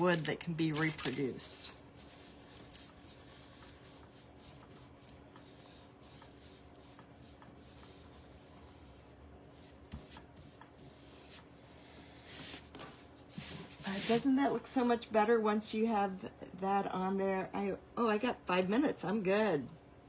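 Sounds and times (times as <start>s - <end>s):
paintbrush strokes scrubbing: 2.0s - 12.7s, 13.3s - 14.4s.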